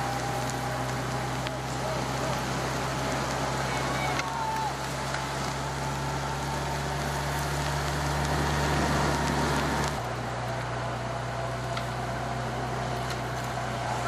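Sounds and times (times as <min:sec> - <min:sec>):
road noise on wet tarmac: 0:00.0 - 0:14.0
vehicle engine hum: 0:00.0 - 0:14.0
wind: 0:00.0 - 0:14.0.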